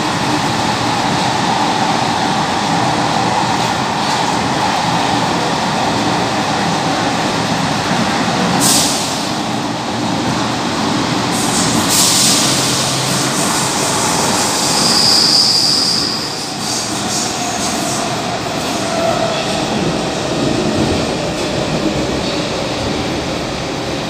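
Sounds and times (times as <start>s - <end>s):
train rumbling in tunnel: 0.0s - 24.0s
high wheel squeal: 12.0s - 18.0s.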